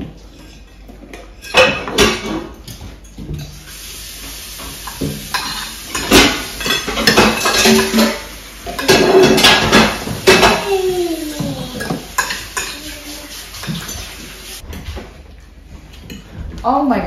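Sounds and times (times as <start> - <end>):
cutlery clinking on plates: 0.2 - 3.8, 4.7 - 10.7, 11.5 - 14.2.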